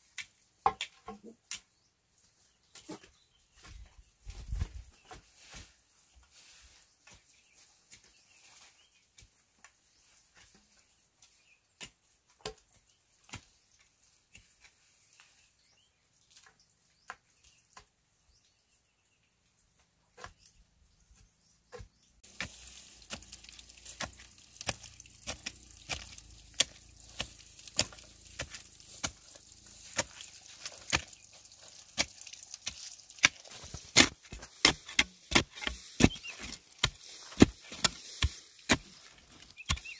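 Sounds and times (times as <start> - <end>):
hand tool chopping strikes: 32.7 - 39.0.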